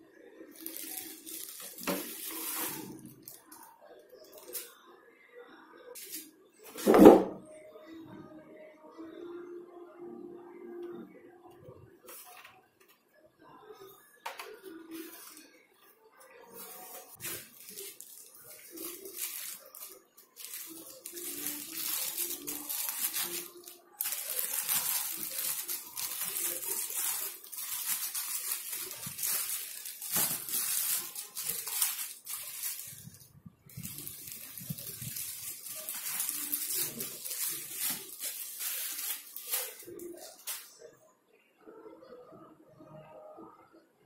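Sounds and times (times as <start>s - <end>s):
plastic wrapping crinkling: 0.4s - 4.7s, 16.5s - 40.7s.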